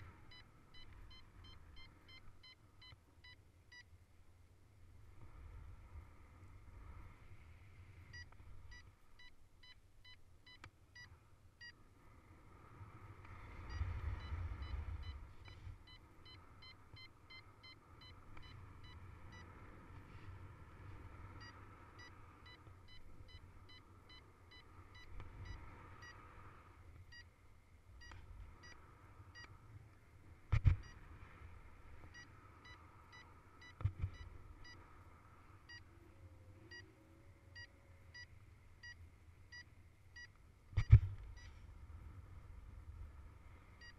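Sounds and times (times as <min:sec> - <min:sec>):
variometer short beeps: 0:00.3 - 0:03.9, 0:08.1 - 0:11.8, 0:13.7 - 0:19.5, 0:21.4 - 0:26.2, 0:32.1 - 0:34.8, 0:36.7 - 0:36.9, 0:37.6 - 0:41.6
wind rumble on microphone: 0:04.8 - 0:08.8, 0:12.1 - 0:17.1, 0:27.8 - 0:32.7, 0:40.7 - 0:43.9.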